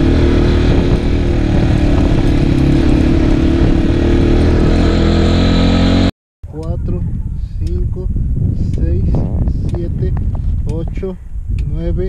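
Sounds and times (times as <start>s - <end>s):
motorcycle engine running: 0.0s - 6.1s.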